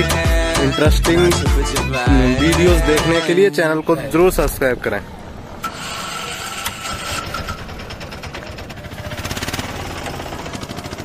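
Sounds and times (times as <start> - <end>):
small engine running: 5.6 - 11.0.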